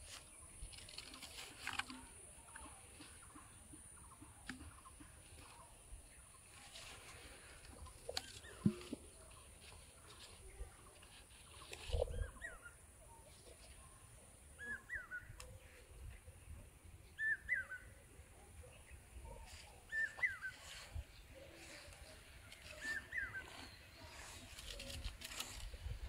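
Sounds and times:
bird call: 14.5s - 15.8s, 17.1s - 18.0s, 19.3s - 25.7s.

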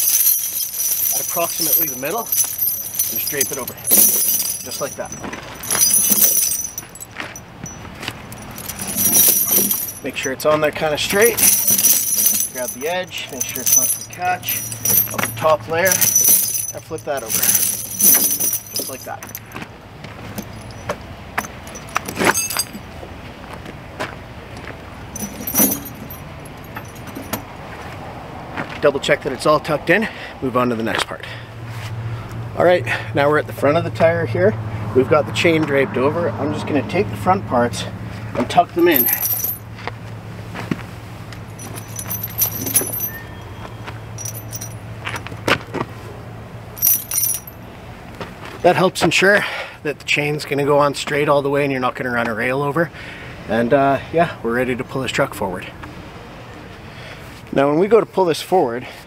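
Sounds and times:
low steady hum: 0.0s - 19.6s, 41.3s - 45.4s
tire chains clinking and jangling: 0.0s - 23.1s, 24.9s - 27.6s, 32.6s - 34.5s, 37.7s - 40.2s, 41.2s - 45.8s, 46.6s - 49.7s.

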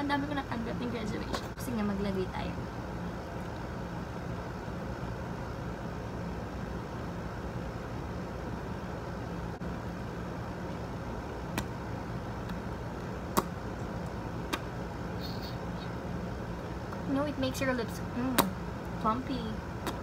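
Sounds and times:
faint hum: 0.0s - 20.0s
low background rumble: 0.0s - 20.0s
lip smack: 13.3s - 13.6s, 14.4s - 15.9s.

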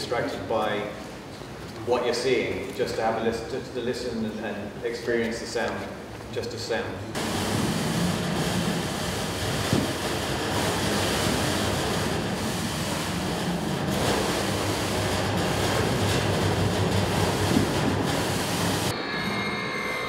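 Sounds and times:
push broom scraping metal wall: 7.2s - 18.9s.

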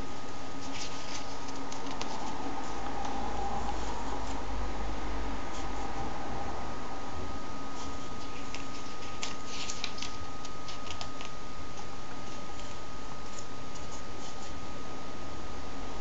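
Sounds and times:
faint high whine: 0.0s - 16.0s
glossy pages turning: 0.6s - 2.4s, 7.8s - 14.5s.

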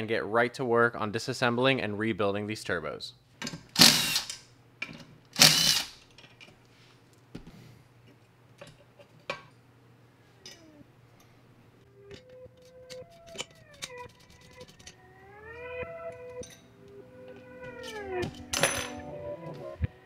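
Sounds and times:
cordless power tool running: 5.4s - 5.9s
faint music: 11.8s - 20.0s
metal parts clicking and tapping: 12.1s - 15.0s.

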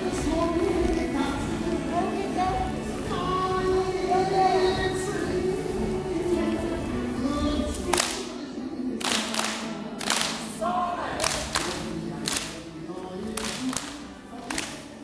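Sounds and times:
dance song with singing voice: 0.0s - 15.0s
group hand claps: 7.9s - 8.3s, 9.0s - 10.6s, 11.2s - 12.6s, 13.3s - 14.9s.

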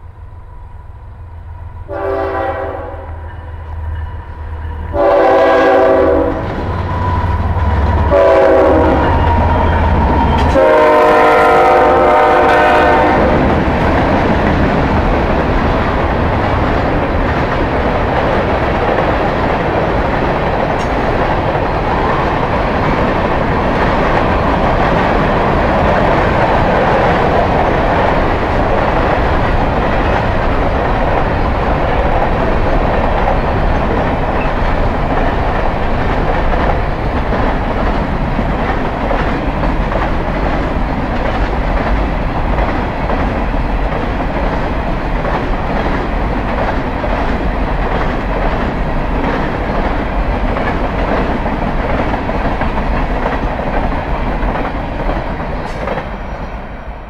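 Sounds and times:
train air horn blasts: 1.9s - 3.4s, 4.9s - 6.6s, 8.0s - 13.4s
freight cars rolling on rails: 3.2s - 57.0s.

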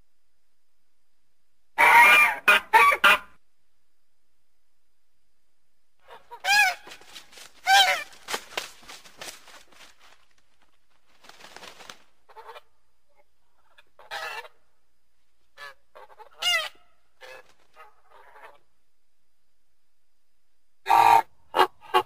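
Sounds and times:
goose honking: 6.0s - 7.0s, 7.6s - 8.2s.

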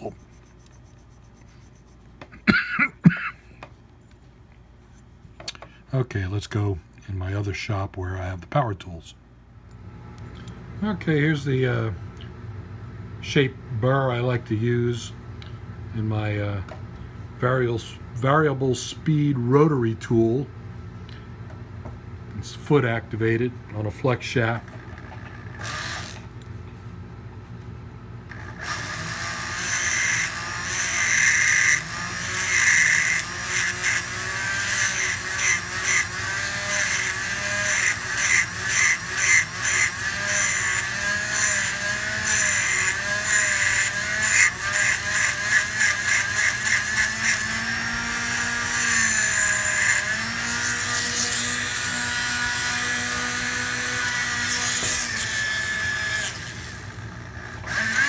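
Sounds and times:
rotary tool grinding rubber: 0.0s - 2.1s, 24.8s - 26.3s, 28.3s - 58.0s.

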